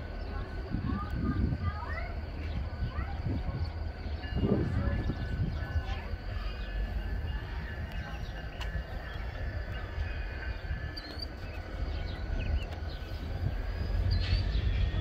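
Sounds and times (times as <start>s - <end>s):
distant rail yard: 0.0s - 15.0s
wind rumbling on microphone: 0.4s - 6.3s.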